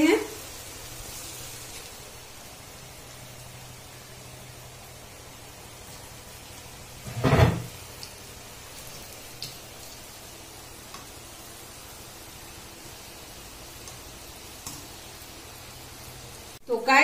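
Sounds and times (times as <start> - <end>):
fritters deep-frying in hot oil: 0.0 - 17.0
loud knock: 7.1 - 7.7.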